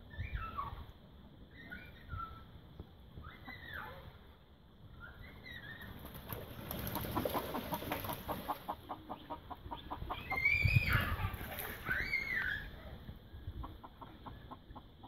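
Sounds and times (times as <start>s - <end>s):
chicken clucking: 6.8s - 10.4s, 13.6s - 15.0s.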